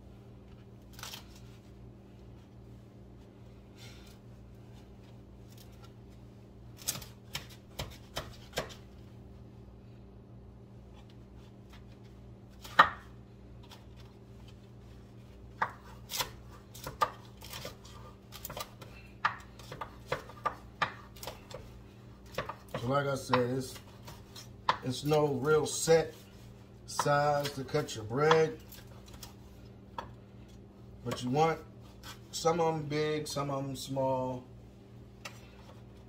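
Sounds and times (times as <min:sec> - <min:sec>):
knife cutting bread: 0:10.9 - 0:32.3.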